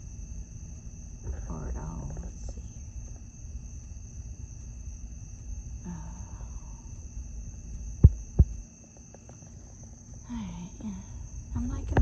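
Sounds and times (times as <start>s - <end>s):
low rumble: 0.0s - 8.6s
night insects chirring: 0.0s - 12.0s.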